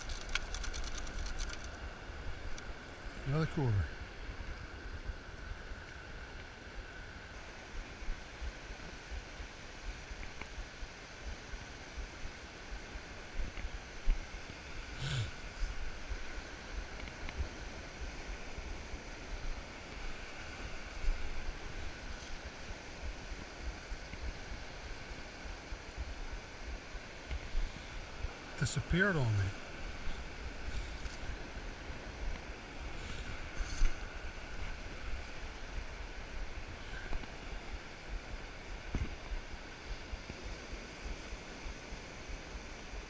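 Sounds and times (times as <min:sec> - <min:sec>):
surf on a beach: 0:00.0 - 0:43.0.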